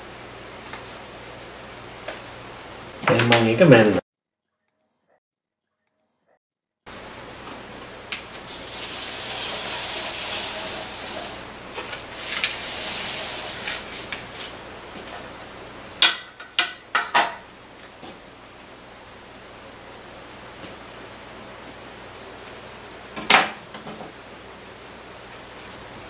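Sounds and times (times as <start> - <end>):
paper rustling and sliding: 8.3 - 14.6.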